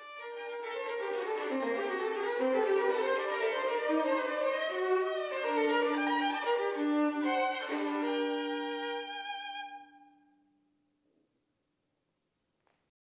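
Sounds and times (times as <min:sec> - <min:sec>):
solo violin melody: 0:00.0 - 0:10.4.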